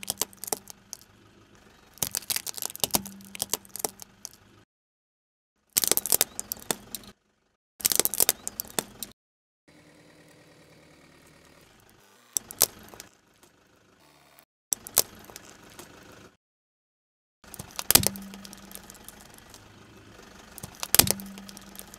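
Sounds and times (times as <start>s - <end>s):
engine and tyre rumble: 0.0s - 4.6s, 11.1s - 14.0s, 14.8s - 16.4s, 17.5s - 21.9s.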